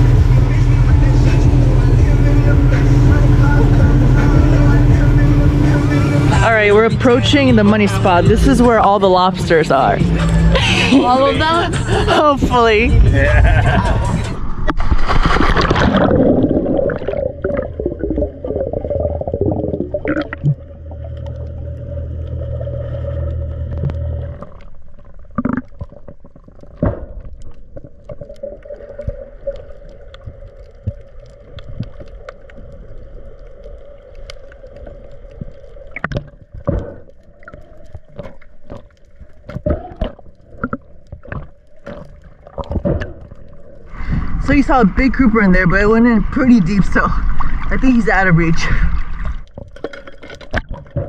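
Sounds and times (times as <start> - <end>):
muffled underwater tone: 0.0 - 14.8, 15.7 - 26.0
low hum: 0.0 - 51.0
camera splashing into sea: 14.6 - 19.2.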